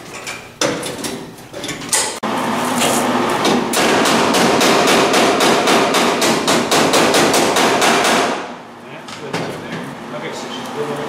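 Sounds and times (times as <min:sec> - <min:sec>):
hammering on sheet metal: 0:03.4 - 0:08.6.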